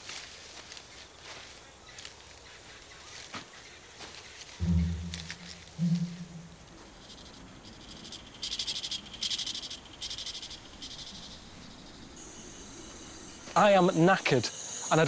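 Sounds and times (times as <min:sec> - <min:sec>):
rainforest ambience: 0:00.0 - 0:15.0
high pulsing animal trill: 0:04.6 - 0:06.6
steady high whine: 0:04.6 - 0:06.8, 0:12.2 - 0:15.0.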